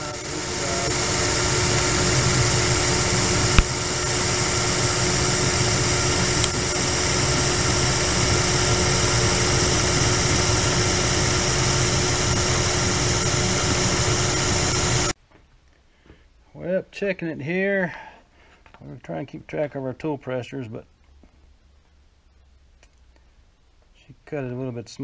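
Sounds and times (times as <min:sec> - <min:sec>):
metal lathe whir and hiss: 0:00.0 - 0:15.2.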